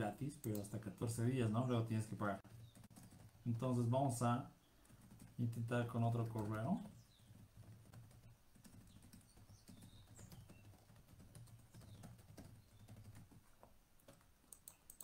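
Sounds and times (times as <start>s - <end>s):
typing on computer keyboard: 2.5s - 3.4s, 4.8s - 15.0s.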